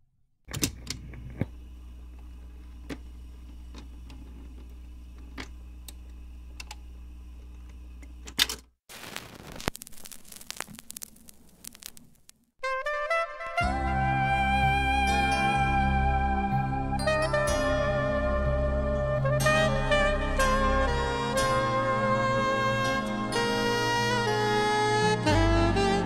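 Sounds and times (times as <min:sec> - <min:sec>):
record low hum: 0:00.2 - 0:12.6
record surface crackle and hiss: 0:00.8 - 0:12.6.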